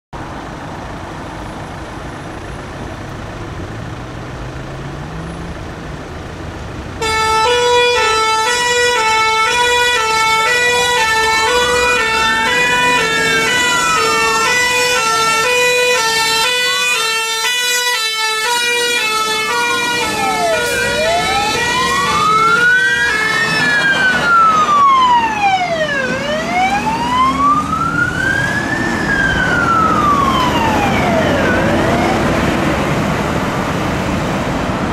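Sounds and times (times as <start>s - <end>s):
fire engine rumbling: 0.2s - 34.9s
two-tone air horns: 7.0s - 21.0s
wail siren: 7.0s - 32.6s.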